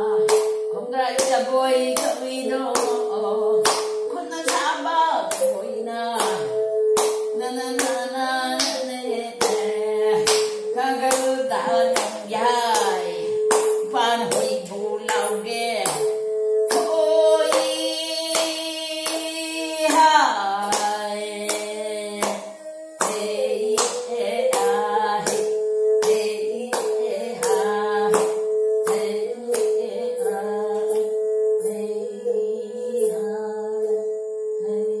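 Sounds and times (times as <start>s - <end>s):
woman singing: 0.0s - 35.0s
hands clapping a beat: 2.0s - 3.0s, 3.6s - 4.7s, 6.2s - 8.0s, 9.4s - 9.6s, 10.2s - 11.3s, 11.9s - 16.9s, 17.5s - 19.3s, 22.2s - 22.4s, 23.0s - 29.7s.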